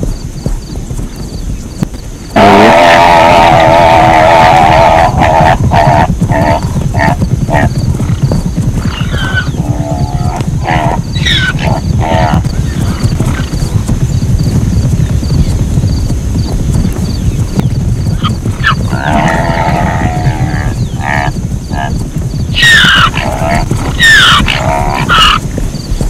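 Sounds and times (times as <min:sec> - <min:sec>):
zebras braying: 0:02.3 - 0:16.4, 0:17.0 - 0:26.0.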